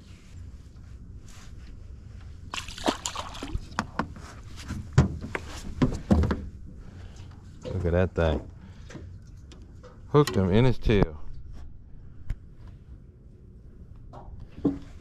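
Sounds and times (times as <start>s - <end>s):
water sloshing against boat: 1.6s - 10.1s
fish thrashing and splashing: 2.5s - 3.8s.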